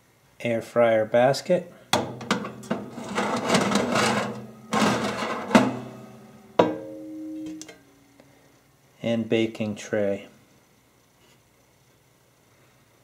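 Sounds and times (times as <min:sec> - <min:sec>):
metal basket scraping metal rails: 0:02.1 - 0:06.6
metal knocks with ringing tone: 0:05.5 - 0:07.6.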